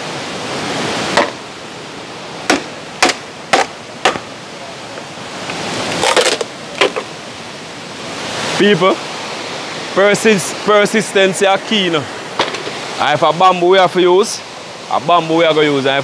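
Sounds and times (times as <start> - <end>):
waterfall rushing: 0.0 - 16.0
wood being whacked: 1.1 - 1.4, 2.5 - 4.3.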